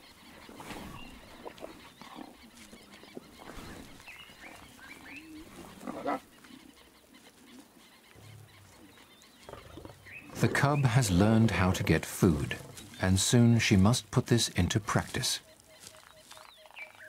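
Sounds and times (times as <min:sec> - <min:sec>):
lion low growl: 0:05.4 - 0:06.3, 0:08.3 - 0:13.0
lions chewing and tearing meat: 0:15.8 - 0:17.0.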